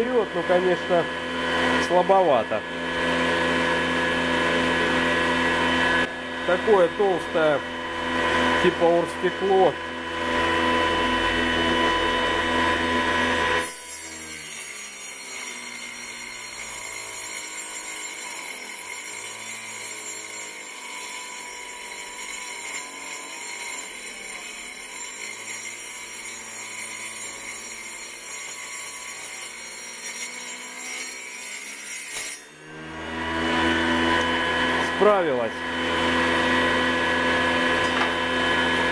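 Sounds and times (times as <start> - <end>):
small table saw whining: 0.0 - 38.9
saw blade cutting acrylic: 6.5 - 36.8.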